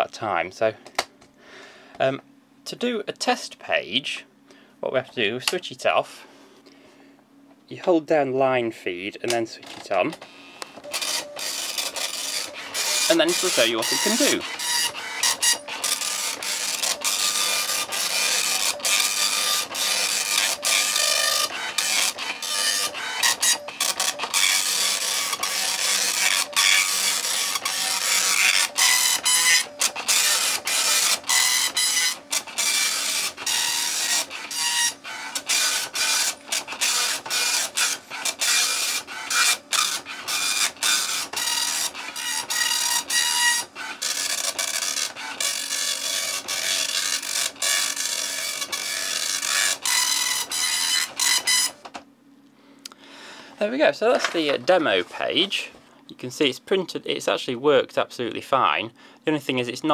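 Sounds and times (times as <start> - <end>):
dot-matrix printer buzzing: 9.6 - 52.0.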